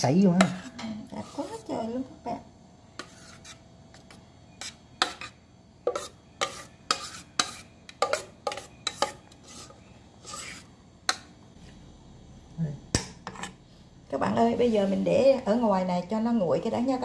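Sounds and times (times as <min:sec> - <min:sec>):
utensil scraping cookware: 0:00.4 - 0:01.7, 0:03.0 - 0:11.2, 0:13.2 - 0:13.6.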